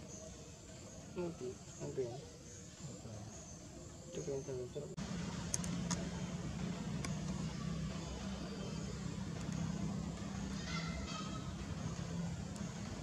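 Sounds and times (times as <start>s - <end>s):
vehicle engine hum: 4.2s - 13.0s
light clicks: 5.4s - 6.1s.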